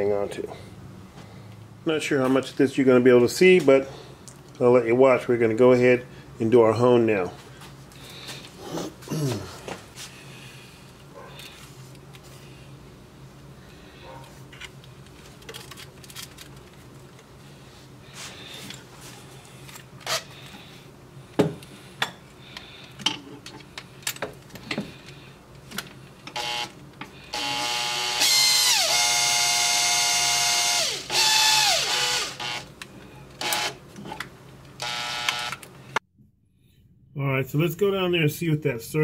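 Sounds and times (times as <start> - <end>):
power drill whining: 26.3 - 26.7, 27.3 - 32.7, 33.4 - 33.8, 34.8 - 35.6.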